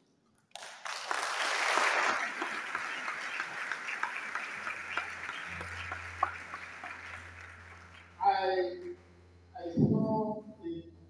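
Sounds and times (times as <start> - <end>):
audience applause: 0.6 - 8.3
low steady hum: 4.4 - 11.0.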